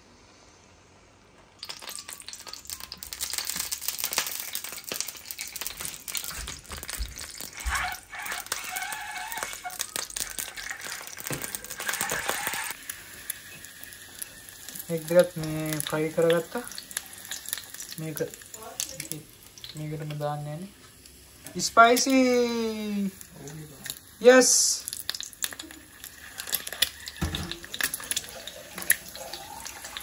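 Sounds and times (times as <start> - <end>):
eggs sizzling in hot oil: 1.4 - 30.0.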